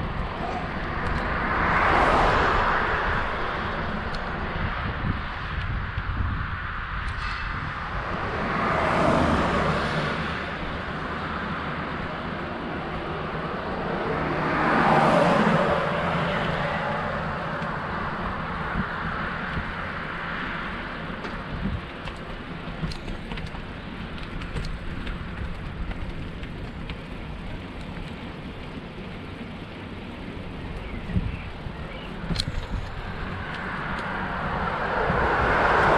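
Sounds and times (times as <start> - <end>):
wind on microphone: 0.0 - 11.4, 15.0 - 20.1, 21.4 - 22.0, 30.6 - 35.9
vehicle passing: 0.0 - 21.2, 25.0 - 35.9
bicycle road noise: 0.0 - 35.9.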